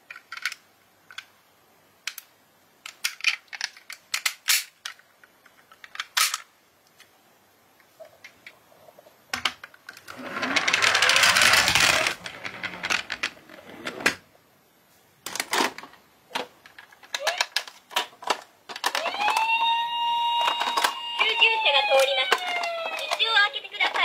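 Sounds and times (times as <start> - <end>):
toy van rattling over wood: 9.9 - 14.2
toy cars clattering in a box: 10.4 - 13.3
electronic toy siren: 18.9 - 23.2.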